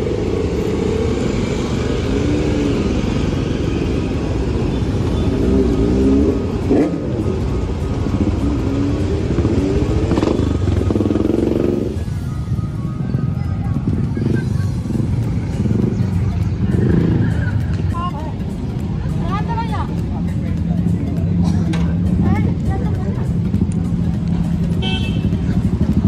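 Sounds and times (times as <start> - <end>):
motorcycles riding past: 0.0 - 19.2.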